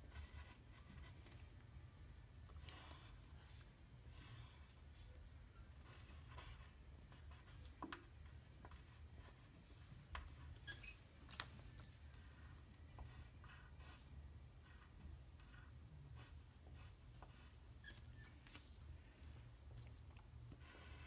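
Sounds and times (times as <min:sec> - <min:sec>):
drawing strokes on paper: 0:02.5 - 0:05.2.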